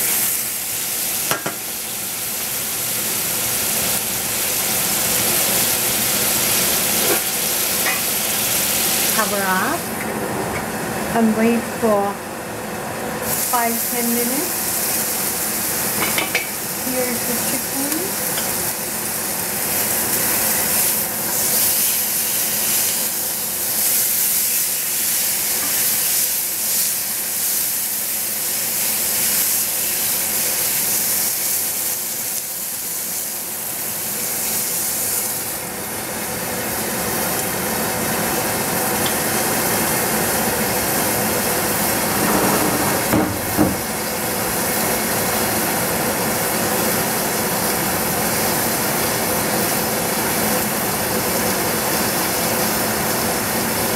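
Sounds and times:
chicken sizzling in a pan: 0:00.0 - 0:10.0, 0:13.2 - 0:53.9.

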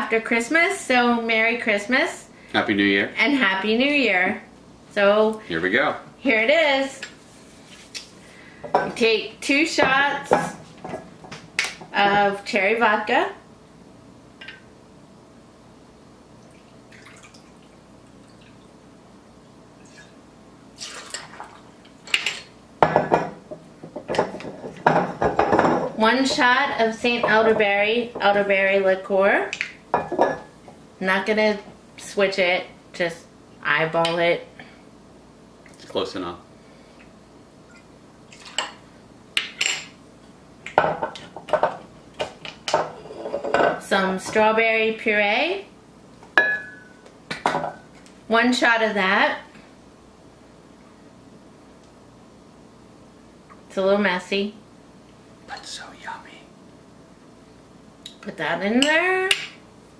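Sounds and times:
glass and metal clinks: 0:46.4 - 0:47.0.

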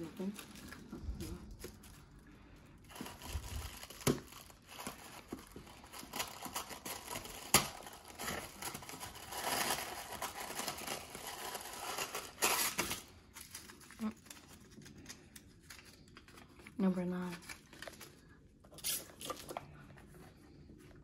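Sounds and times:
tissue paper crinkling: 0:02.8 - 0:18.3.

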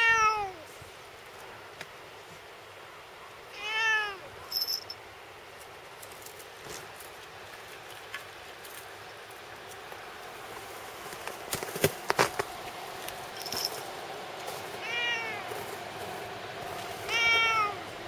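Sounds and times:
cat meowing: 0:00.0 - 0:00.6, 0:03.5 - 0:04.3, 0:14.8 - 0:15.5, 0:17.1 - 0:17.8.

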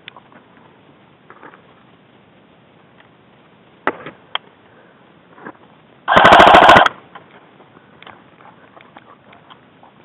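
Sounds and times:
airsoft gun full-auto burst: 0:06.1 - 0:07.0.

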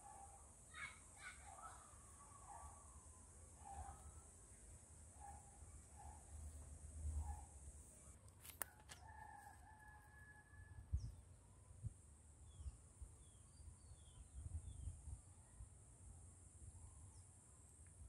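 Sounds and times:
distant rooster crowing: 0:08.6 - 0:11.0.

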